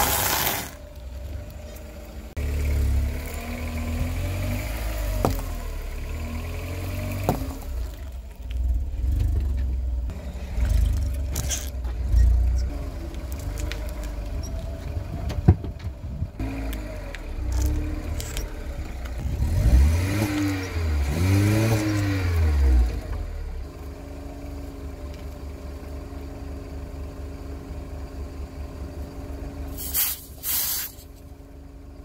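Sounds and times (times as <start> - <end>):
tyre crushing objects: 0.0 - 0.8, 5.2 - 5.5
car engine rumbling: 0.0 - 32.0.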